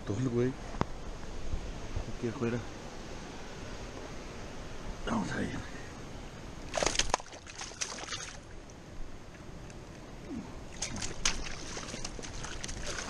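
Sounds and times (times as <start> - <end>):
steady rushing hiss: 0.0 - 6.7.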